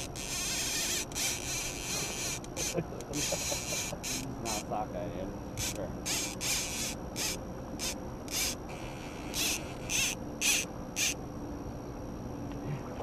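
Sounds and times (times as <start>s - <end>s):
fishing reel whirring: 0.0s - 4.7s, 5.6s - 11.2s.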